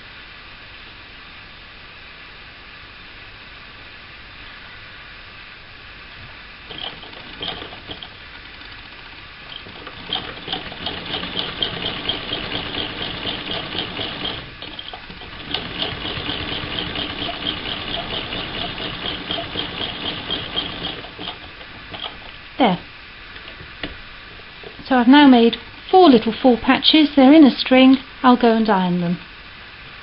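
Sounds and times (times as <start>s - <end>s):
sewing machine stitching: 6.7s - 22.4s.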